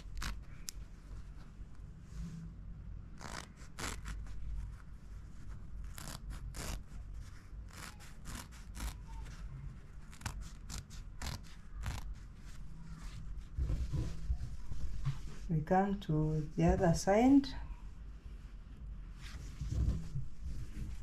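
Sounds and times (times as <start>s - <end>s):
scissors snipping fabric: 10.1s - 12.2s.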